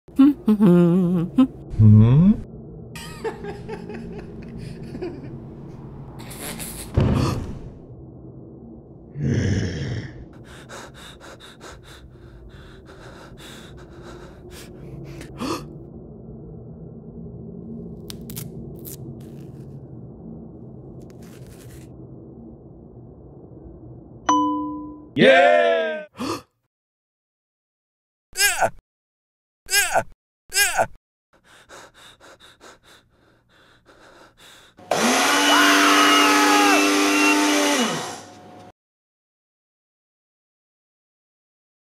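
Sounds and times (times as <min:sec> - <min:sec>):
blender blending: 0:34.8 - 0:38.7.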